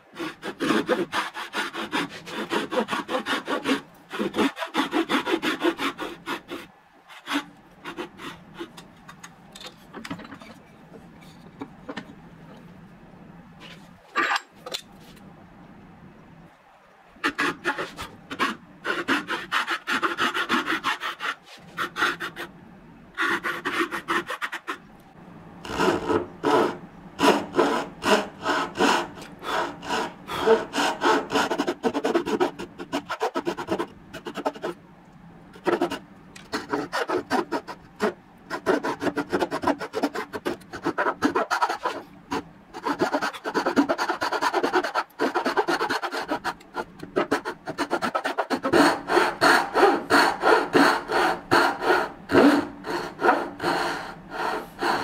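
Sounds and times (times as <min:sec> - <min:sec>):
hand saw cutting wood: 0:00.1 - 0:08.8, 0:17.2 - 0:22.5, 0:23.2 - 0:24.8, 0:25.6 - 0:34.8, 0:35.6 - 0:55.0.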